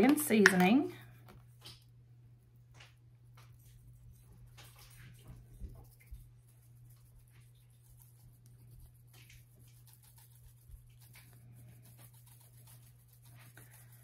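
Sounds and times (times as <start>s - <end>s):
steady low hum: 0.0s - 14.0s
shaker jar ticks and rustles: 2.8s - 14.0s.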